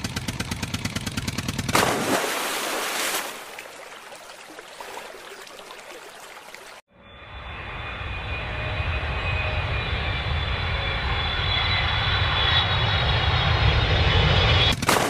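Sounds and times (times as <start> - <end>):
toy splashing into pond: 1.7 - 6.8
churning water bubbling: 1.8 - 6.8.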